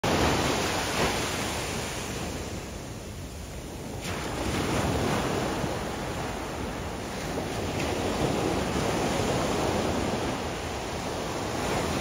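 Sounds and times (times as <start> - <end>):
ocean surf washing onto beach: 0.0 - 12.0.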